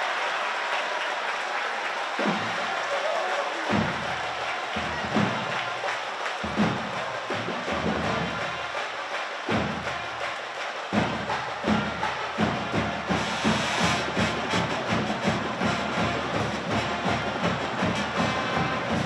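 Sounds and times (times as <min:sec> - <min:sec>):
bass drums and snare beat: 0:02.2 - 0:02.8, 0:03.7 - 0:05.8, 0:06.4 - 0:08.8, 0:09.4 - 0:19.0
brass band playing: 0:11.6 - 0:19.0.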